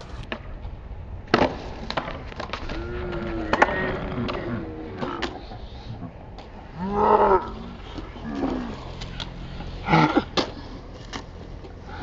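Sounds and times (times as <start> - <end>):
skateboard slamming: 1.2 - 5.3
skateboard clacking on concrete: 1.2 - 5.4, 10.2 - 11.8.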